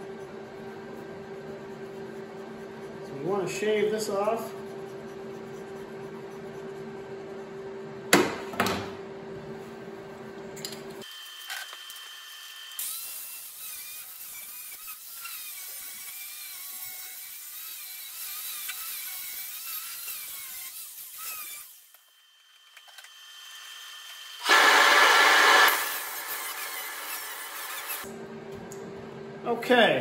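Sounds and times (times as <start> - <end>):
angle grinder grinding steel: 11.0 - 28.1.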